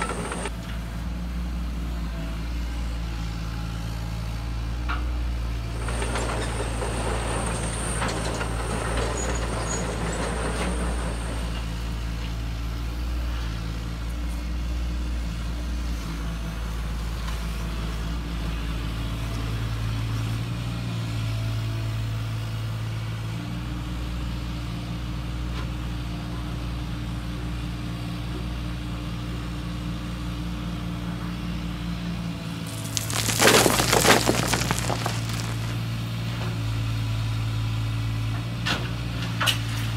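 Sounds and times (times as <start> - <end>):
bucket scraping through gravel: 32.7 - 35.8
gravel pouring into toy truck: 32.7 - 35.8.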